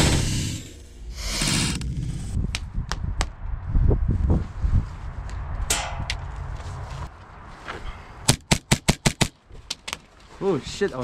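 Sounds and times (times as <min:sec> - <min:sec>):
rustling of movement: 0:01.0 - 0:08.2
heavy low thumps: 0:01.8 - 0:06.6
sharp airsoft shots: 0:08.3 - 0:09.3.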